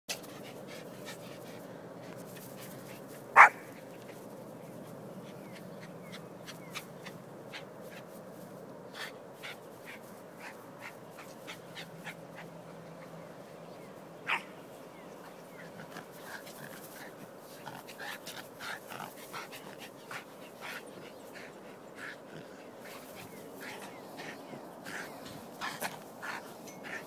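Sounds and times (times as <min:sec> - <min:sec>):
dog barking: 0:03.4 - 0:03.7, 0:14.3 - 0:14.5.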